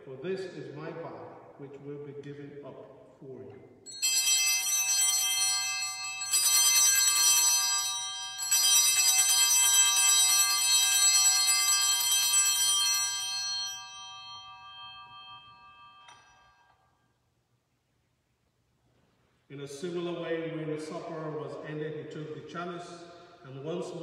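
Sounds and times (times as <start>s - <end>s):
bells ringing: 3.9s - 17.0s.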